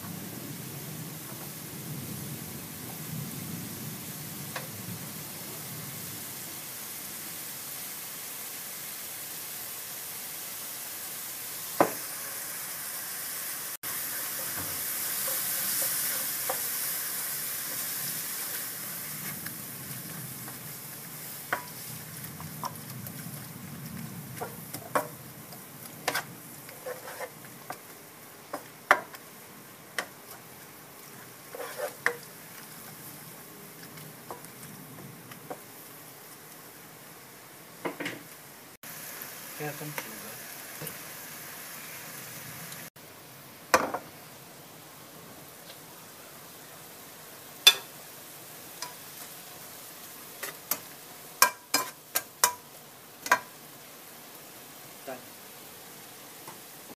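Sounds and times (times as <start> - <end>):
vegetables sizzling in a wok: 0.0 - 56.9
wooden spatula scraping pan: 26.0 - 27.9, 30.0 - 33.2.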